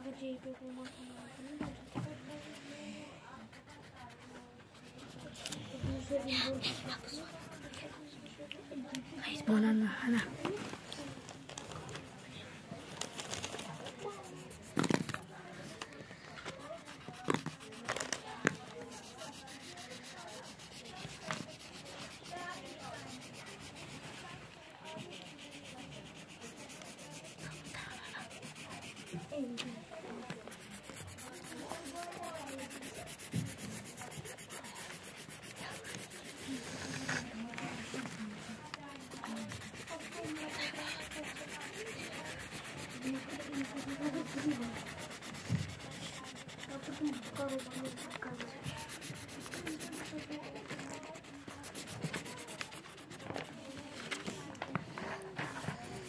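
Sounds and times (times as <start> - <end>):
marker scratching on paper: 3.4 - 8.1, 13.1 - 15.8, 16.4 - 54.3.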